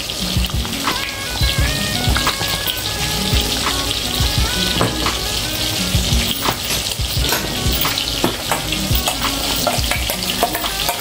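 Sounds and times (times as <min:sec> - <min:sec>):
spices sizzling in hot oil: 0:00.0 - 0:11.0
spoon scraping and tapping pan: 0:06.4 - 0:11.0.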